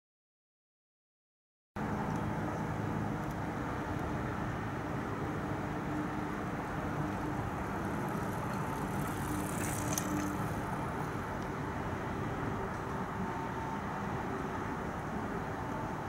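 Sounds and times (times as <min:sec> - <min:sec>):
distant road traffic hum: 0:01.8 - 0:16.0
bicycle rattling and clicking: 0:06.9 - 0:11.5.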